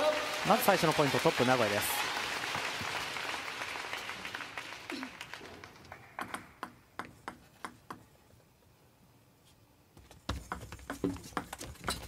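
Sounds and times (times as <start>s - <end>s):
crowd applause: 0.0s - 6.2s
table tennis balls bouncing: 6.2s - 8.2s, 10.0s - 12.0s.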